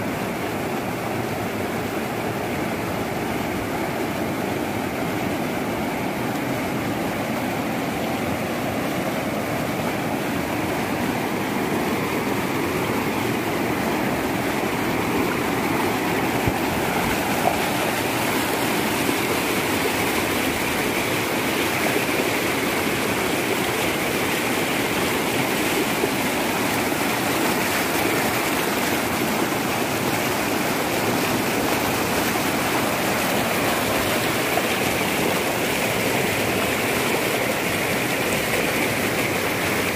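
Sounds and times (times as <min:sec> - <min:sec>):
rushing flood torrent: 0:00.0 - 0:39.9.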